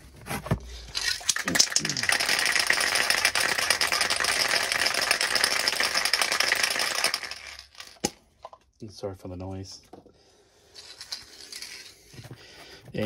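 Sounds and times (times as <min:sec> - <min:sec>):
spray can rattling while shaken: 0:00.9 - 0:08.1, 0:10.8 - 0:12.0.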